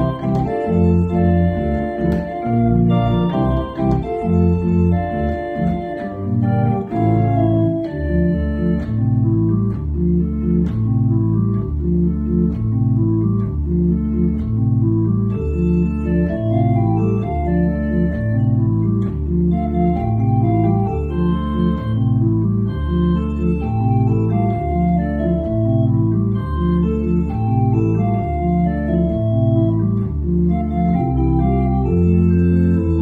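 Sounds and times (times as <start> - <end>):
pipe organ playing chords: 0.0 - 33.0.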